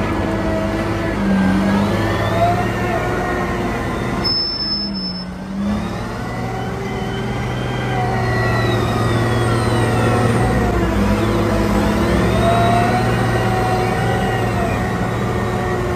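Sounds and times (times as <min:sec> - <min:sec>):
diesel engine under load: 0:00.0 - 0:15.9.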